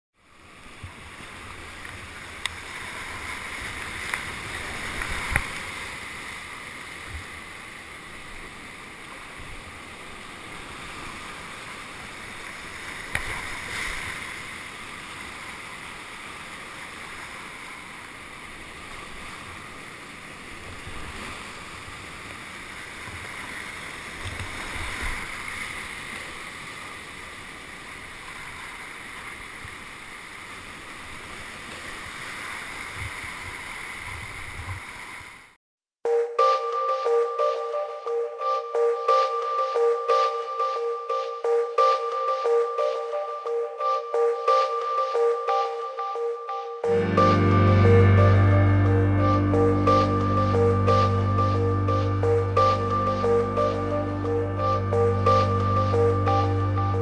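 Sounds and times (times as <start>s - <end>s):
rushing river water: 0.2s - 35.6s.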